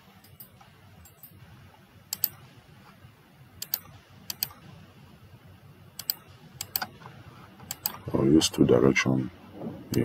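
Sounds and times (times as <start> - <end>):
faint steady background hum: 0.0 - 10.0
mouse and keyboard clicks: 2.1 - 2.4, 3.6 - 4.6, 6.0 - 6.9, 7.6 - 8.0.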